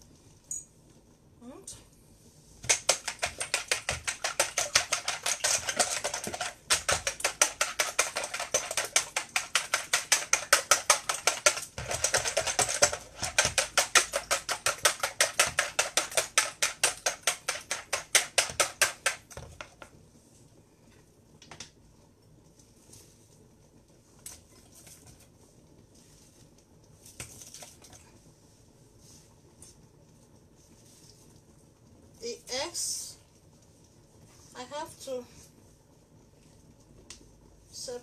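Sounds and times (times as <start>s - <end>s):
whisk beating eggs in bowl: 2.6s - 20.0s.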